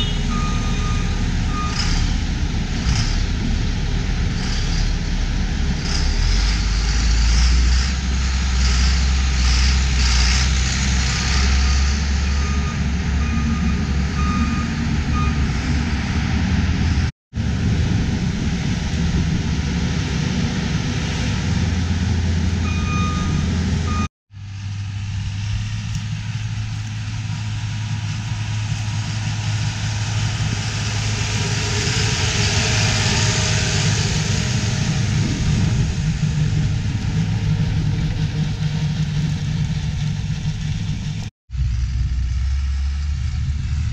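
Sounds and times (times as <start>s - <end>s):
backup alarm beeping: 0.0s - 1.9s, 12.2s - 15.6s, 22.6s - 24.1s
diesel engines running: 0.0s - 43.9s.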